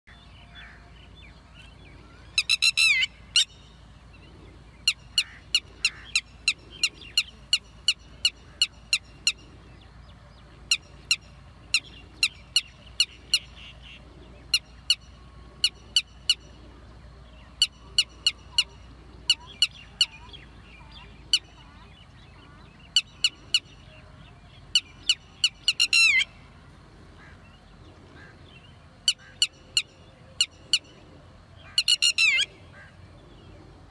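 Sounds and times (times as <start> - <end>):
lapwing calling: 0.2 - 33.9.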